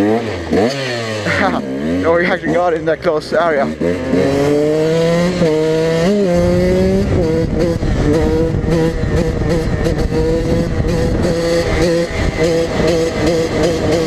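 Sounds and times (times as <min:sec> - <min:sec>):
dirtbike engine revving: 0:00.0 - 0:14.0
wind on microphone: 0:05.0 - 0:14.0.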